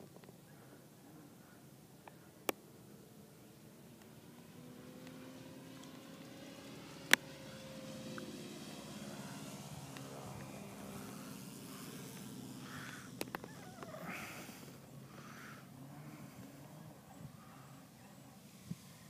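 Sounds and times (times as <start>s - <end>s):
windy rustle: 0.0s - 19.0s
distant model plane motor droning: 2.8s - 19.0s
sharp clicks: 12.9s - 13.9s.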